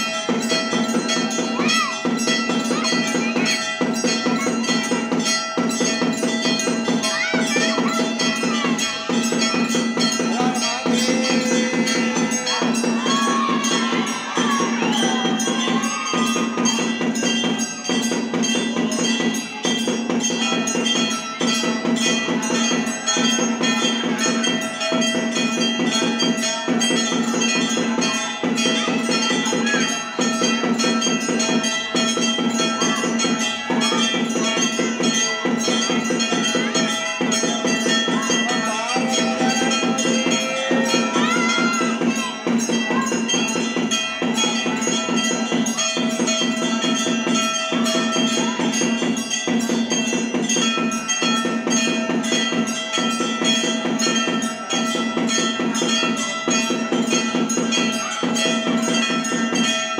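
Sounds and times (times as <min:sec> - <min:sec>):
drums beaten fast: 0:00.0 - 0:59.9
temple bells ringing: 0:00.0 - 0:59.9.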